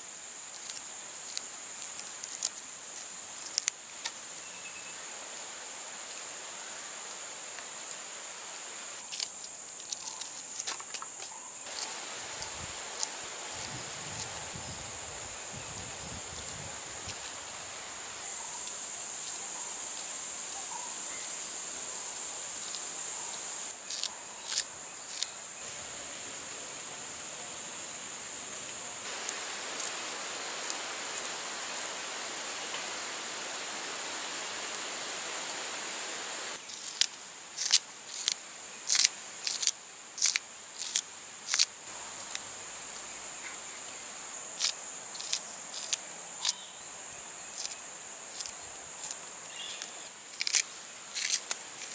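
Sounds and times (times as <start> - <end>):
insects chirring: 0.0 - 51.9
crisp clicks of stalks cut by hand: 0.5 - 4.2, 9.0 - 14.3, 23.9 - 25.3, 36.7 - 42.4, 44.6 - 46.6, 47.6 - 51.9.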